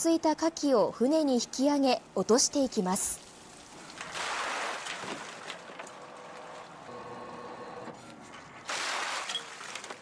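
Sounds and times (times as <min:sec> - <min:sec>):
rush of water and shells: 0:03.4 - 0:06.4, 0:08.7 - 0:10.0.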